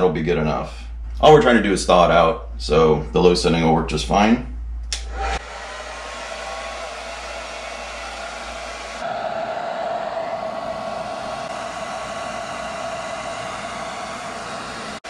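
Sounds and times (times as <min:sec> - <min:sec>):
hair dryer running: 0:04.9 - 0:15.0.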